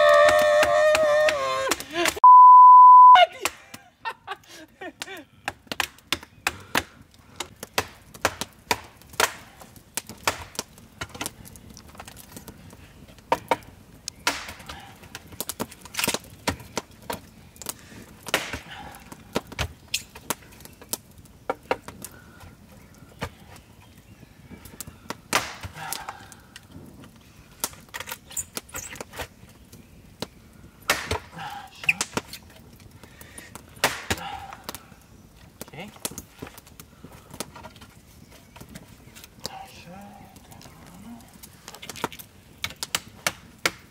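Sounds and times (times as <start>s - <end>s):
machete chopping wood: 18.3s - 18.6s, 30.9s - 31.3s, 33.8s - 34.3s.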